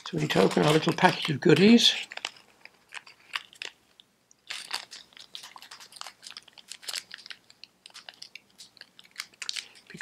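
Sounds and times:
plastic bag crinkling: 0.0s - 10.0s.

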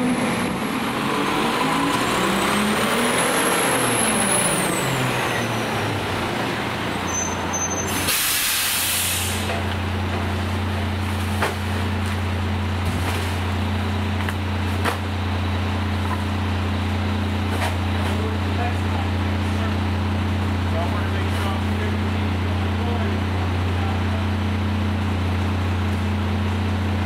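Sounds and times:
air brakes hissing: 7.1s - 9.6s
garbage truck idling: 9.0s - 27.0s.

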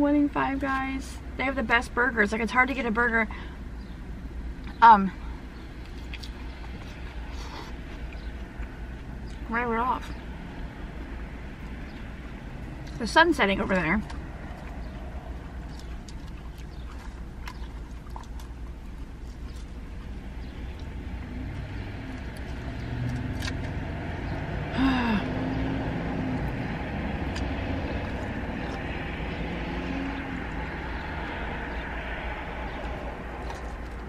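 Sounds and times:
low car rumble: 0.0s - 34.0s
chewing salad: 5.8s - 9.5s, 14.0s - 24.7s, 26.2s - 34.0s.

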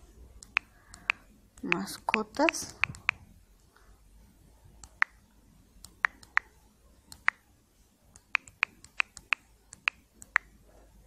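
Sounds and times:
smartphone keyboard typing clicks: 0.4s - 3.2s, 5.8s - 6.5s, 7.1s - 7.4s, 8.2s - 10.5s.

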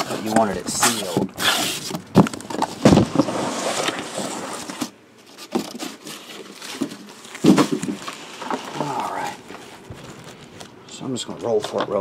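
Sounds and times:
boxes knocking set down: 0.0s - 8.8s
cardboard rustling scrape: 0.0s - 10.7s.

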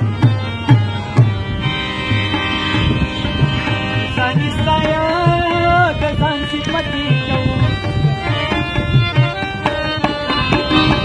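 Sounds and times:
harmonium chords: 0.0s - 11.0s
tabla strokes: 7.7s - 11.0s.

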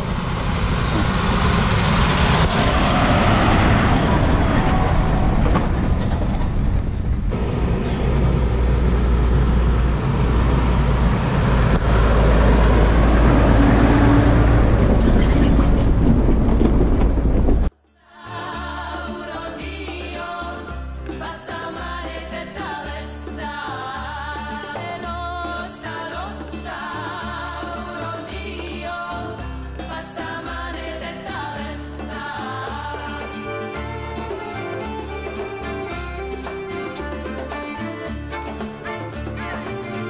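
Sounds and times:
tyres and trailer on gravel: 0.0s - 9.0s, 12.7s - 17.8s
tractor diesel engine rumble: 0.0s - 17.7s
music: 17.7s - 40.0s.

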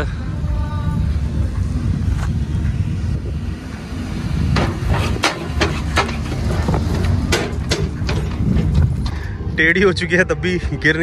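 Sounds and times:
steady low rumble: 0.0s - 11.0s
tyres knocking over logs: 4.5s - 8.9s.

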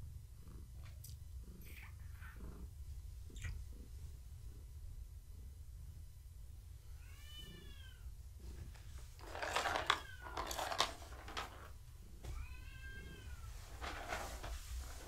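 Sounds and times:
cat meowing: 7.0s - 8.1s, 12.3s - 13.6s
plastic cat toy clattering: 9.2s - 11.7s.

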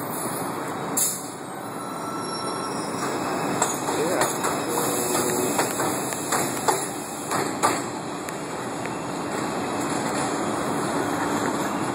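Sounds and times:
train running noise: 0.0s - 11.9s
subway train wheels knocking: 3.0s - 11.9s.

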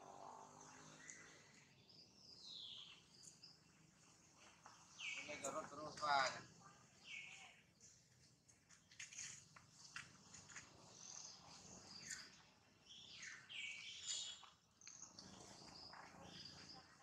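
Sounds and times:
faint bird chirps: 4.7s - 8.1s, 10.9s - 17.0s.

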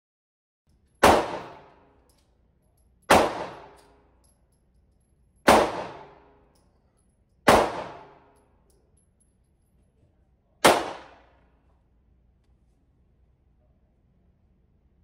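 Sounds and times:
pistol shots echoing: 1.0s - 1.8s, 3.1s - 3.8s, 5.5s - 6.3s, 7.5s - 8.3s, 10.6s - 11.4s.

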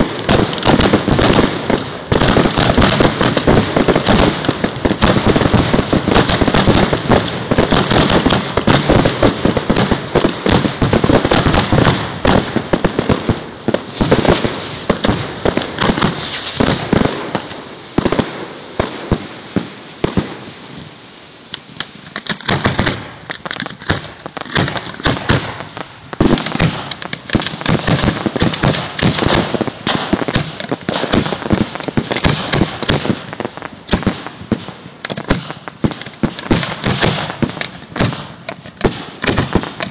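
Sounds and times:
firework launch thumps: 0.0s - 18.2s
firework shell bursts: 0.0s - 20.8s.

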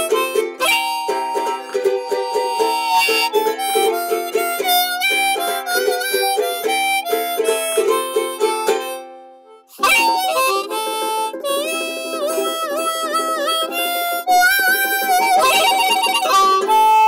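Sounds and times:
upbeat instrumental music: 0.0s - 17.0s.

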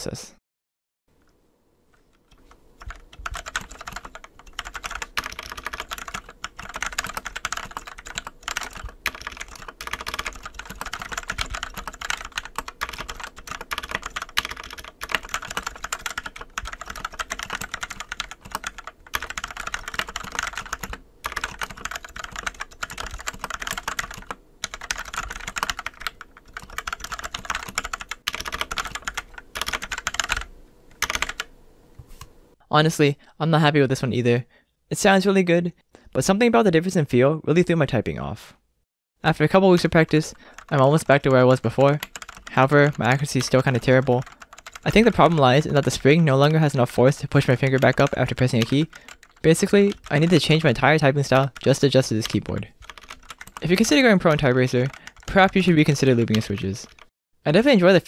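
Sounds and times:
typing on mechanical keyboard: 2.1s - 31.5s, 40.0s - 45.4s, 47.4s - 50.6s, 51.2s - 57.1s.

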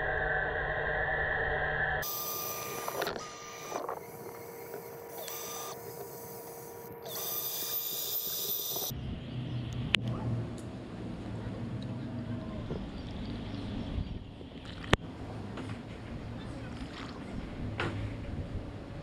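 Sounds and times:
pool cleaner pump motor whirring: 2.0s - 8.9s.

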